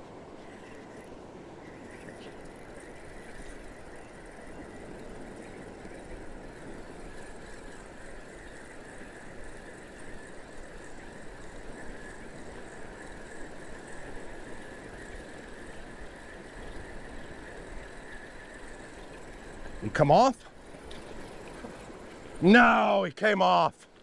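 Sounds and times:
surf washing on beach: 13.2 - 24.0.

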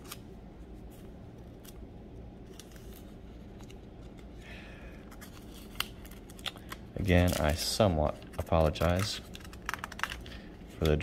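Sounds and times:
thin pages being leafed through: 2.4 - 4.3, 5.1 - 10.2.

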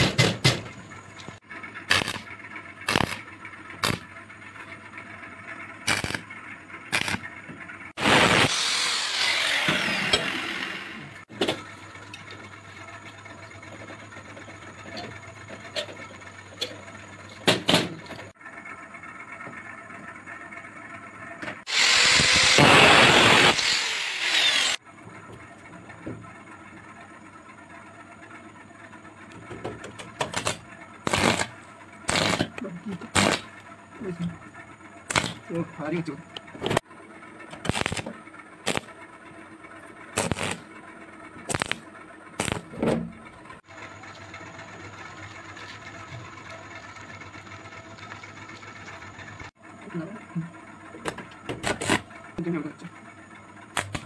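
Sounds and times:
arc welder crackling bursts: 1.8 - 4.1, 5.8 - 6.3, 6.9 - 7.3, 8.0 - 11.3, 21.6 - 24.8, 30.3 - 33.6, 35.0 - 35.5, 37.6 - 39.0, 40.2 - 40.7, 41.4 - 42.8, 53.7 - 54.0
angle grinder cutting metal: 1.9 - 2.3, 2.9 - 3.2, 5.9 - 6.2, 6.9 - 7.2, 8.0 - 11.3, 21.7 - 24.8, 30.4 - 31.5, 32.1 - 33.5, 38.7 - 38.9, 40.2 - 40.6, 41.5 - 41.8, 42.4 - 42.8.

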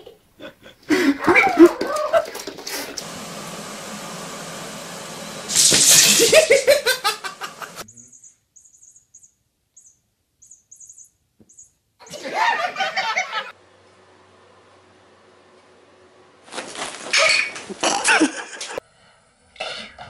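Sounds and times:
people laughing loudly: 0.4 - 3.0, 6.1 - 7.8, 12.0 - 13.5, 17.8 - 18.8
faint high chirps: 7.8 - 11.8.

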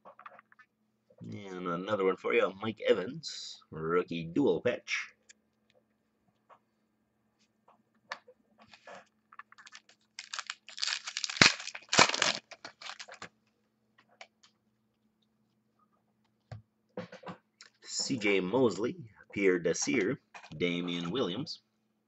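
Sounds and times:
crinkly packaging rustling: 8.7 - 13.4.

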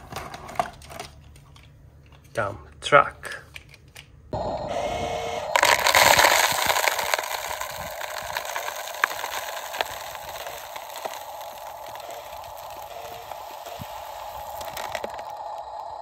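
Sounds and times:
gravel pouring down rock: 5.6 - 16.0
stones clicking: 5.6 - 16.0.

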